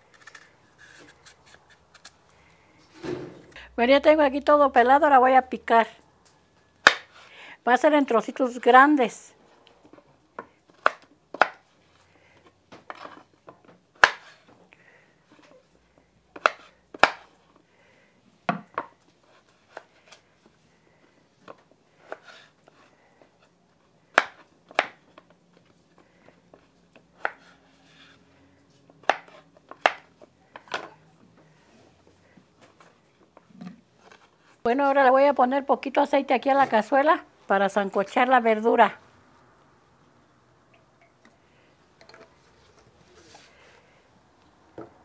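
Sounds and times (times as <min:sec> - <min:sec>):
knife chopping on wooden board: 0:06.8 - 0:07.1, 0:16.4 - 0:17.3, 0:29.0 - 0:31.0.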